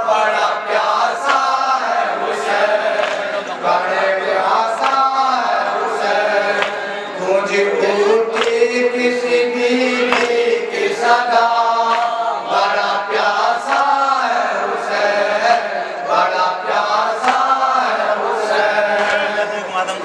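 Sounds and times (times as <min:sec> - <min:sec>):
men chanting through pa: 0:00.0 - 0:20.0
hands slapping chest: 0:01.2 - 0:01.6, 0:04.8 - 0:05.0, 0:06.6 - 0:06.8, 0:11.9 - 0:12.1, 0:13.7 - 0:14.0, 0:17.2 - 0:17.6, 0:19.0 - 0:19.2.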